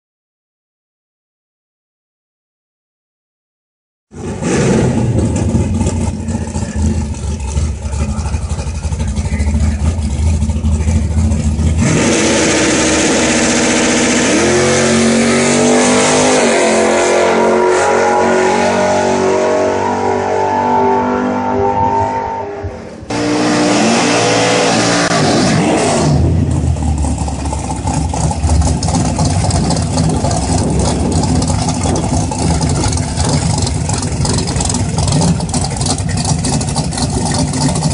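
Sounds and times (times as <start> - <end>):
car accelerating at full throttle: 4.1 - 37.9
car engines idling: 4.2 - 14.3, 26.1 - 37.9.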